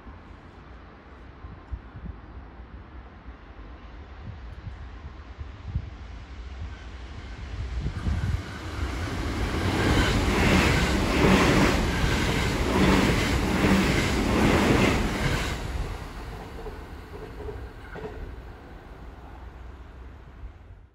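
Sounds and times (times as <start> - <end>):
electric train passing: 6.1 - 20.9.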